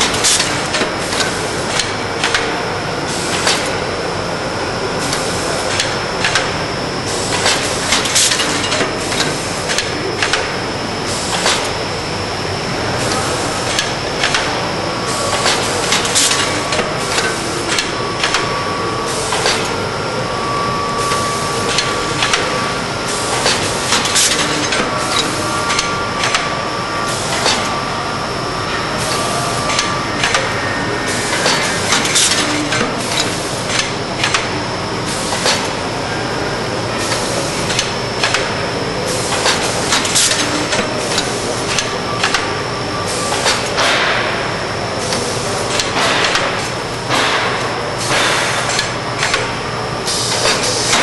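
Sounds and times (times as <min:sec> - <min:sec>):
sharp machine clacks: 0:00.0 - 0:02.6, 0:07.3 - 0:10.6, 0:13.1 - 0:14.6, 0:15.2 - 0:18.6, 0:21.0 - 0:26.6, 0:29.0 - 0:30.6, 0:31.2 - 0:34.5, 0:37.1 - 0:38.6, 0:39.3 - 0:42.6, 0:43.2 - 0:44.4, 0:45.1 - 0:51.0
machine mechanical din: 0:12.7 - 0:35.8, 0:36.9 - 0:51.0.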